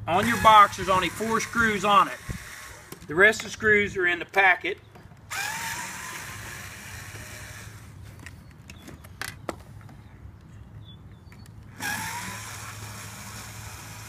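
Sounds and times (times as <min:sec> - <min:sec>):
electric screwdriver whirring: 0:00.2 - 0:03.1, 0:05.3 - 0:08.0, 0:11.8 - 0:14.0.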